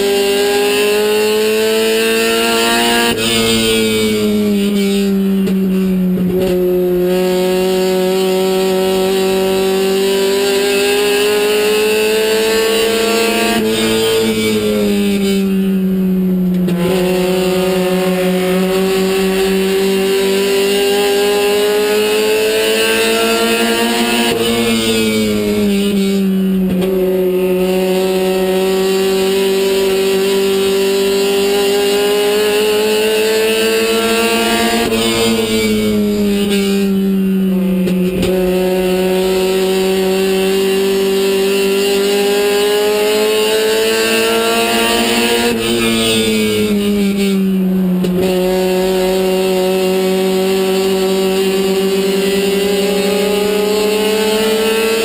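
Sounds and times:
race car engine at high revs: 0.0 - 55.0.

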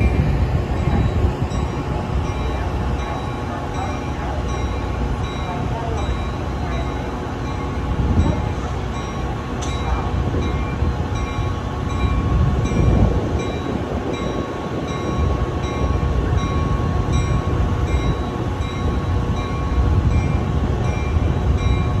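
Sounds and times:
diesel locomotive rumbling: 0.0 - 22.0.

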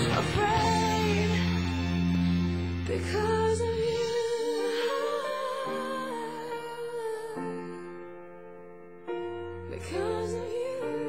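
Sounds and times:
person singing wavering melody: 0.0 - 1.8.

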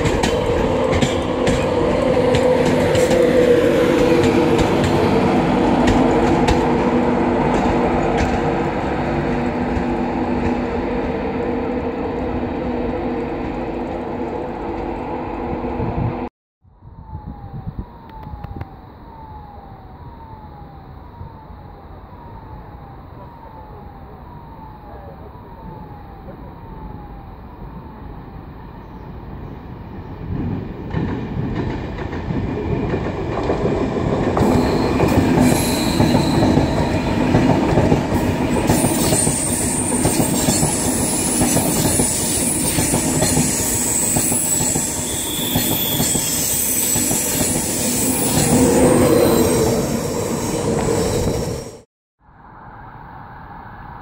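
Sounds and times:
train wheels rumbling over rails: 0.0 - 16.3, 29.9 - 51.8
train humming at platform: 0.0 - 54.0
high metallic squeal: 34.4 - 37.2, 38.6 - 51.8.

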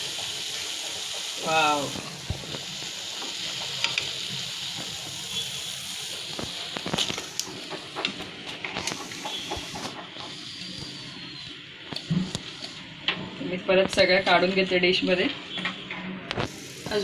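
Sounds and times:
fritters sizzling in hot oil: 0.0 - 13.0, 16.3 - 17.0.

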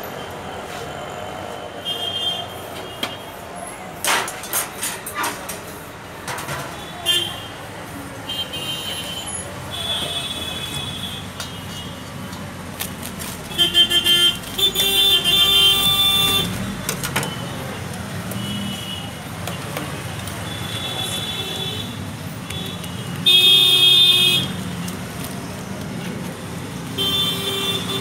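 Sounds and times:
traffic hum: 0.0 - 28.0
vehicle horns honking: 1.8 - 3.4, 6.8 - 7.5, 8.3 - 12.0, 13.5 - 17.6, 20.4 - 24.6, 27.0 - 28.0.

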